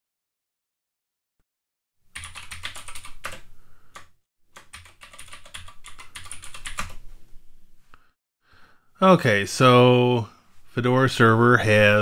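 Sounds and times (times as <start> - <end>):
keyboard typing: 2.1 - 7.0.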